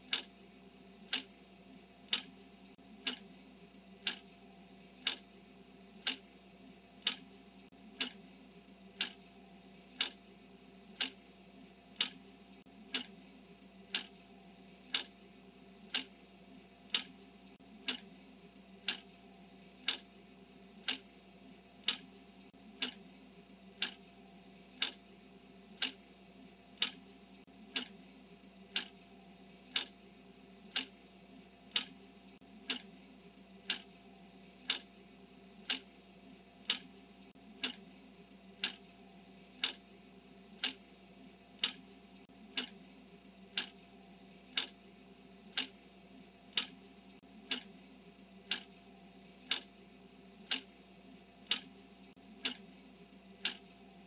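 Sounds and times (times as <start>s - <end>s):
timer ticking: 0.0s - 0.3s, 1.0s - 1.5s, 2.1s - 2.4s, 3.0s - 3.3s, 4.0s - 4.4s, 5.0s - 5.3s, 6.0s - 6.3s, 7.0s - 8.3s, 8.9s - 10.2s, 10.9s - 13.2s, 13.8s - 14.2s, 14.9s - 15.2s, 15.9s - 16.2s, 16.9s - 18.2s, 18.8s - 20.1s, 20.8s - 23.1s, 23.7s - 24.0s, 24.7s - 25.1s, 25.7s - 26.1s, 26.8s - 27.1s, 27.7s - 28.0s, 28.6s - 29.0s, 29.7s - 30.0s, 30.7s - 31.1s, 31.7s - 33.0s, 33.6s - 33.9s, 34.6s - 34.9s, 35.6s - 36.0s, 36.6s - 37.9s, 38.6s - 39.9s, 40.5s - 42.8s, 43.5s - 44.8s, 45.4s - 47.8s, 48.4s - 48.8s, 49.4s - 49.7s, 50.4s - 52.7s, 53.3s - 54.0s
faint steady hum: 0.0s - 54.0s.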